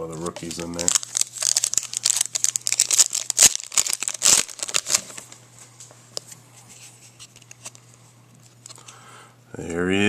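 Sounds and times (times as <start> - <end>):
foil wrapper crinkling: 0.1 - 5.4.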